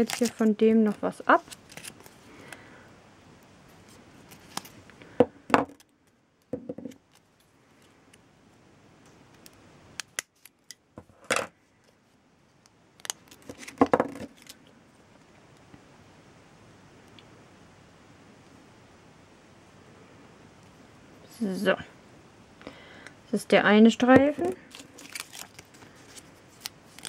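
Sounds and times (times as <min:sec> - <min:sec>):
plastic sheet rustling: 0:00.0 - 0:02.2, 0:24.6 - 0:27.0.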